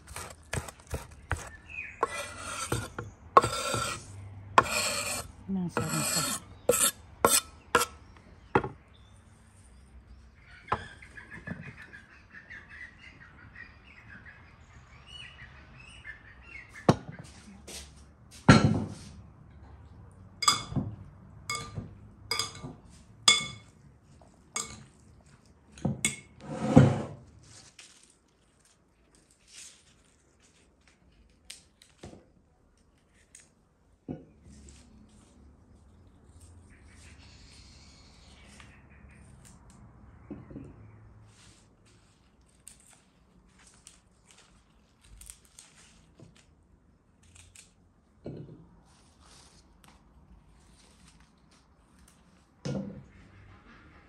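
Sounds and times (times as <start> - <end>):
knife chopping on wooden board: 0.0 - 4.0, 4.6 - 8.0
knife scraping cutting board: 0.0 - 8.0, 26.4 - 27.3.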